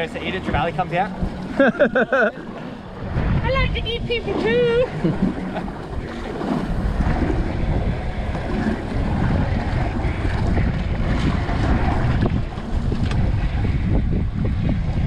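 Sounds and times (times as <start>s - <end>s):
wind buffeting microphone: 0.0s - 15.0s
water slapping against boat hull: 4.2s - 13.7s.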